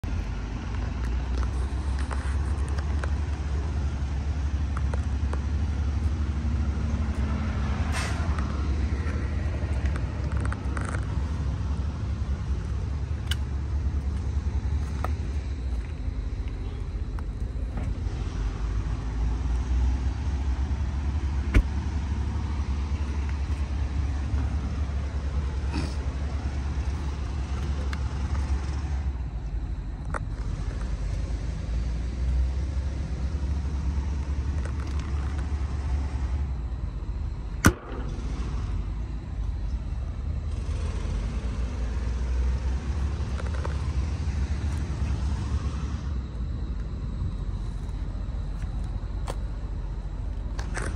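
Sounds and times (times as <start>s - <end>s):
diesel truck engine idling: 0.0s - 50.9s.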